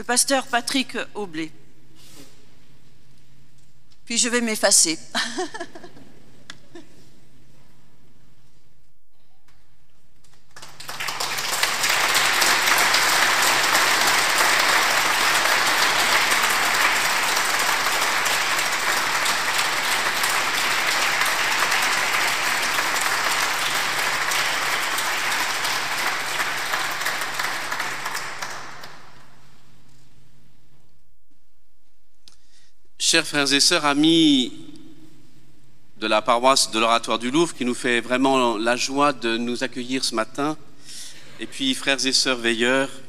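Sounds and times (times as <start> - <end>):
crowd applauding: 10.5 - 29.4.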